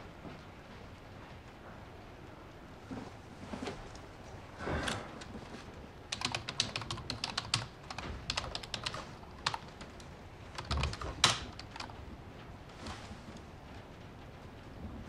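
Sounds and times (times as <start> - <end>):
keyboard typing: 6.1 - 12.0.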